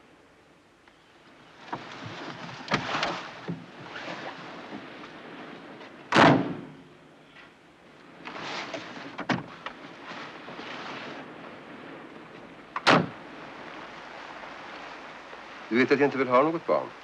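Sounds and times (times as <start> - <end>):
rustling: 1.5 - 15.8
car door slamming: 6.1 - 6.7, 12.8 - 13.1.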